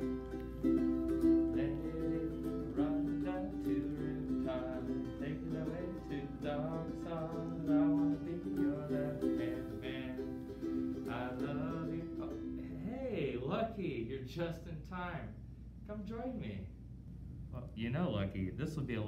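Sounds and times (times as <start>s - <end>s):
ukulele plucked tune: 0.0s - 12.7s.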